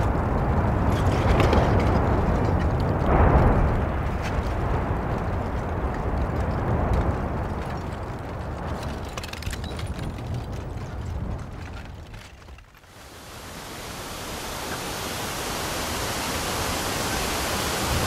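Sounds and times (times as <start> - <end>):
crackling of small pops: 0.0 - 12.9
deep volcanic rumbling: 0.0 - 18.0.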